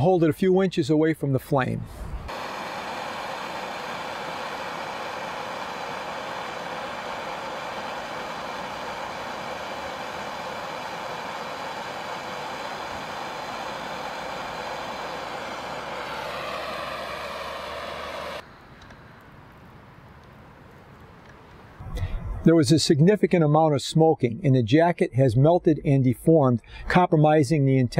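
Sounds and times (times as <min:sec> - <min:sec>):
propane torch hissing: 0:02.3 - 0:18.4.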